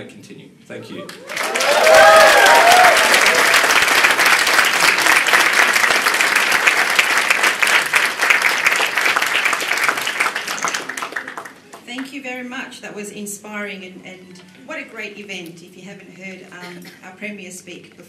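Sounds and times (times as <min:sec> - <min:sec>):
people whooping and cheering: 0:01.1 - 0:03.9
audience applauding: 0:01.1 - 0:11.8.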